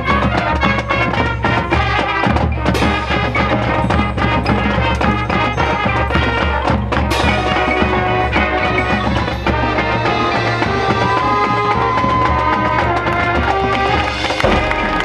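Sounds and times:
marching band playing: 0.0s - 15.0s.

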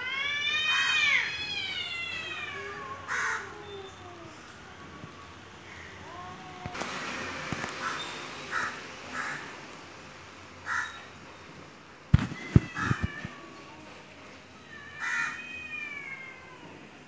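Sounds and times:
cat yowling: 0.0s - 4.2s, 12.4s - 13.6s, 14.6s - 16.9s
crow cawing: 7.8s - 9.5s, 10.6s - 11.0s, 15.0s - 15.4s.

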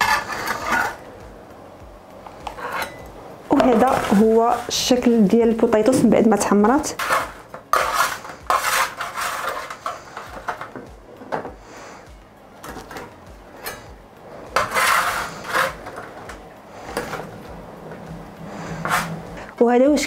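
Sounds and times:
metal spatula scraping baking tray: 0.0s - 1.1s, 2.5s - 10.8s, 13.6s - 19.5s.

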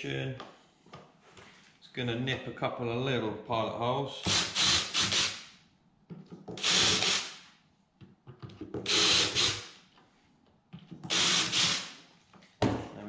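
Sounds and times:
cordless drill drilling: 4.3s - 5.5s, 6.6s - 7.4s, 8.8s - 9.8s, 11.1s - 12.0s.

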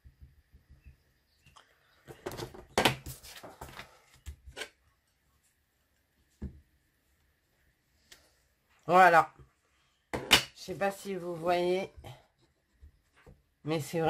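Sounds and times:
paper rustling: 2.3s - 4.6s.

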